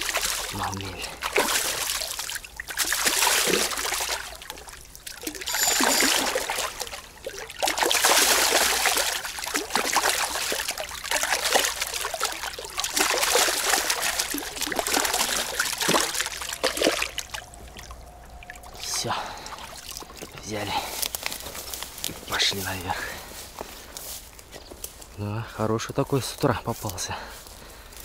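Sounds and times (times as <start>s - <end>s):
fish splashing in shallow water: 0.0s - 22.2s.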